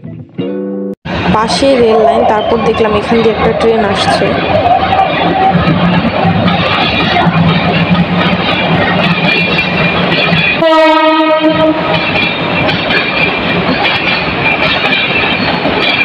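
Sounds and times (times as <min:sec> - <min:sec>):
train running on rails: 0:01.1 - 0:16.0
train horn blast: 0:10.6 - 0:12.0.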